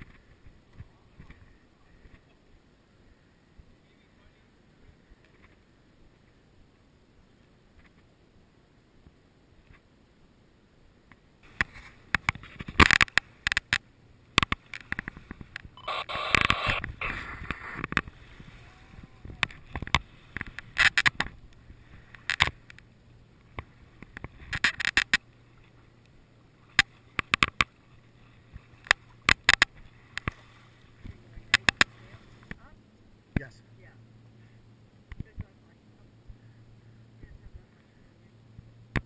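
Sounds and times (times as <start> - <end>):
knocks and clatter on sailboat: 11.1 - 15.8, 16.8 - 22.9
rush of noise: 15.8 - 20.1.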